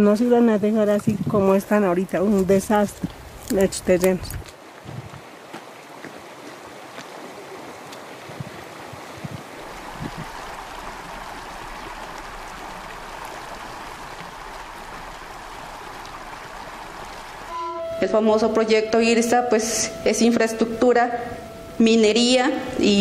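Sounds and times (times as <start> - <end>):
stream rushing over stones: 1.0 - 17.5.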